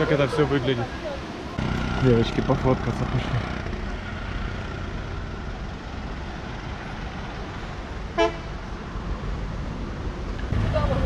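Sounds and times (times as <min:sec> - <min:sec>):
road traffic rumbling: 0:00.0 - 0:11.0
vehicle horn toot: 0:08.2 - 0:08.4.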